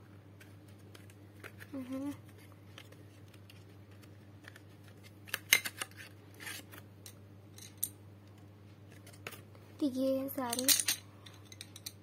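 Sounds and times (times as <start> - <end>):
wooden pencils clacking: 10.4 - 12.0.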